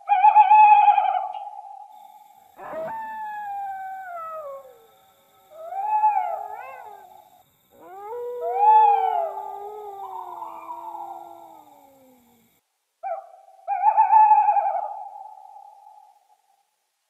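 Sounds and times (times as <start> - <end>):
dogs howling: 2.6 - 7.2, 7.8 - 12.4.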